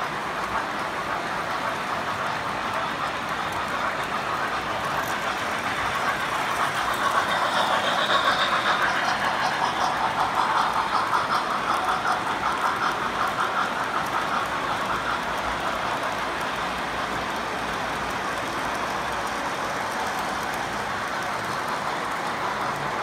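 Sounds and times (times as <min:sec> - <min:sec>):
train rolling rumble: 0:00.0 - 0:23.0
train wheels clicking on rail joints: 0:00.0 - 0:23.0.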